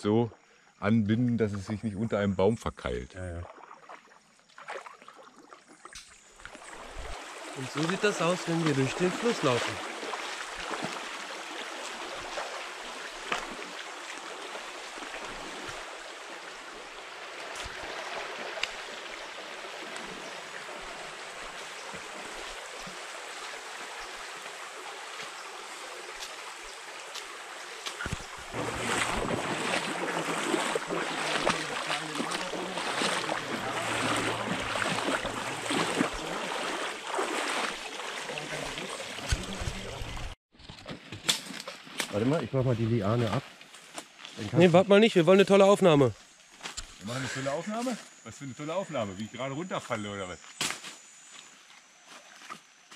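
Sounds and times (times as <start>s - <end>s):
people wading through water: 3.2s - 40.4s, 47.0s - 50.2s
stony creek running: 3.2s - 45.8s.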